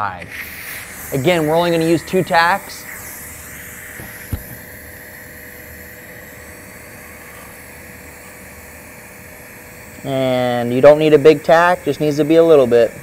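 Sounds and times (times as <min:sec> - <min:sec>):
welding arc hissing: 0:00.0 - 0:13.0
welding arc striking click: 0:03.9 - 0:04.8.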